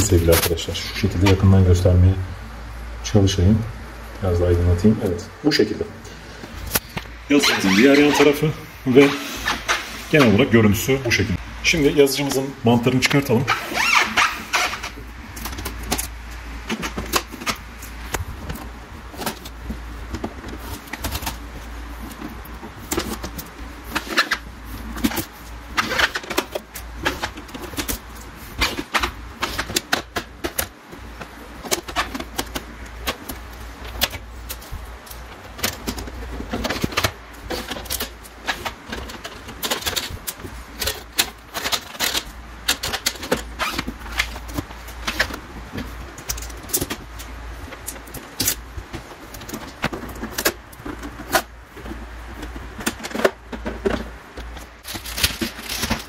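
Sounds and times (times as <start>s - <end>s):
tape peeling off plastic: 13.5s - 18.6s
plastic clicks and rattles: 13.8s - 56.0s.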